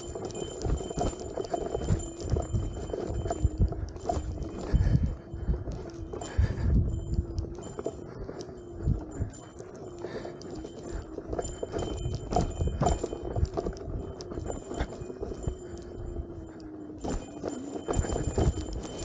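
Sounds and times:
wheel clattering over rough ground: 0.0 - 5.0, 5.7 - 15.9, 16.9 - 19.0.

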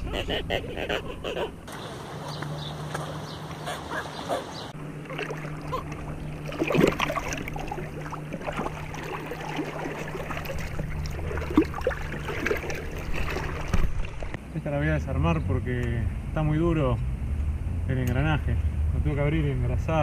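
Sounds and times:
steady low hum: 0.0 - 20.0
hands splashing in shallow water: 5.0 - 14.4.

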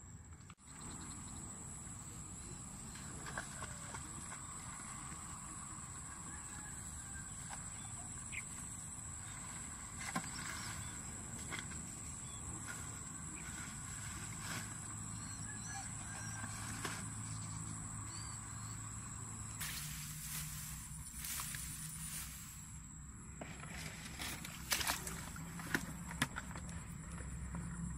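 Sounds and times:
insects droning: 0.0 - 27.9
tall grass rustling and snapping: 19.6 - 22.8.

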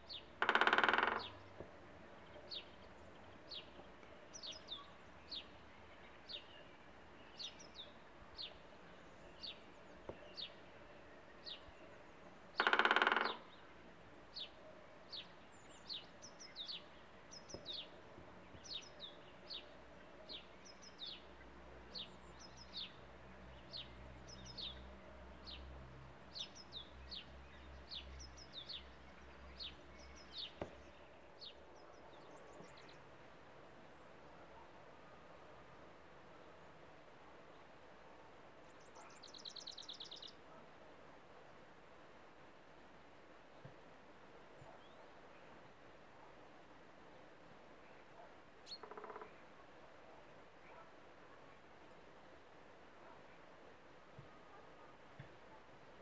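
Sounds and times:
high bird calls: 0.1 - 1.6, 12.6 - 13.6
woodpecker drumming on wood: 0.3 - 1.8, 12.5 - 13.6, 48.8 - 49.3.

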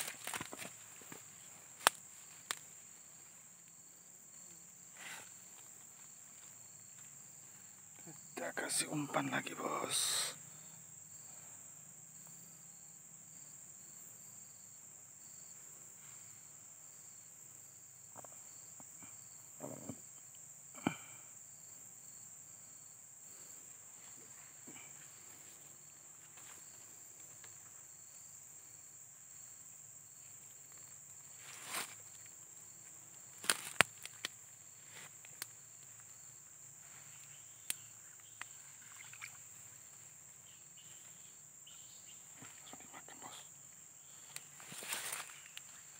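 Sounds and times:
high insect buzz: 0.0 - 45.9
faint regular chirping: 39.8 - 44.6.

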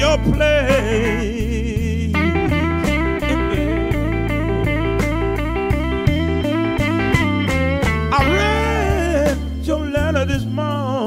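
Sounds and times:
bass line: 0.0 - 11.0
electric guitar lead: 2.1 - 10.0.

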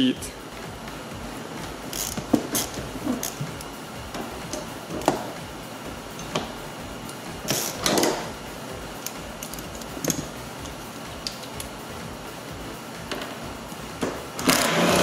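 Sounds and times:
ratchet clicking: 1.9 - 3.7, 7.0 - 8.2, 9.0 - 11.7.

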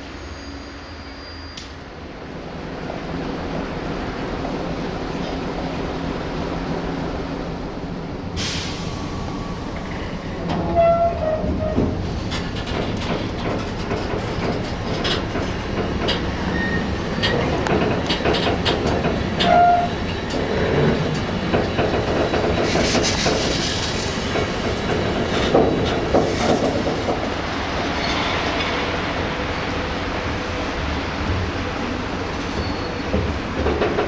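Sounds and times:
train wheels clicking over rail joints: 9.8 - 29.3, 32.3 - 34.0.

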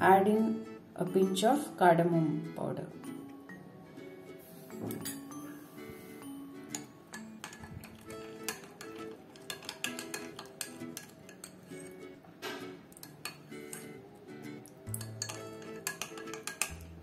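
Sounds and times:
background music: 0.0 - 17.0
spoon clinking against glass: 6.6 - 12.0, 12.9 - 14.0, 14.8 - 16.9.

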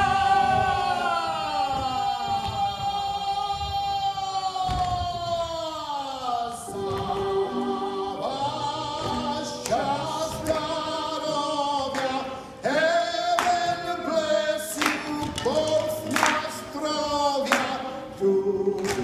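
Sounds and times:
male chorus singing: 0.0 - 5.5, 6.1 - 19.0.

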